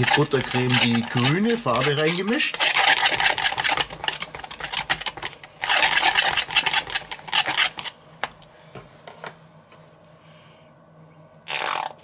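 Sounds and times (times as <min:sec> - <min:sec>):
whisk rattling in plastic bowl: 0:00.0 - 0:07.9
whisk taps: 0:00.0 - 0:08.4.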